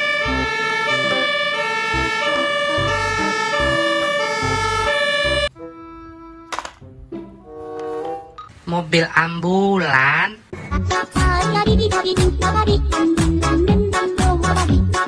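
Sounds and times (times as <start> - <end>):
fire truck siren: 0.0 - 6.4.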